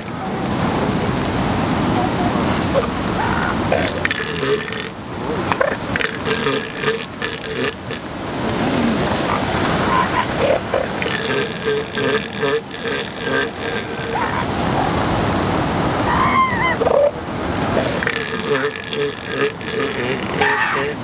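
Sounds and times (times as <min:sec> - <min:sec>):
surf washing: 0:00.0 - 0:21.0
elephant seals pulsed calls: 0:02.5 - 0:04.8, 0:09.2 - 0:14.5, 0:17.8 - 0:21.0.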